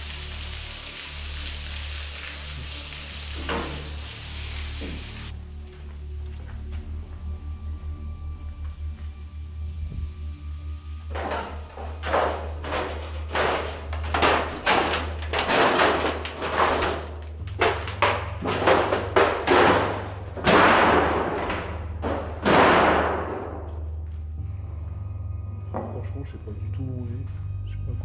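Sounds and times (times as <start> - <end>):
footsteps crunching over debris: 4.8 - 7.4, 11.1 - 22.5.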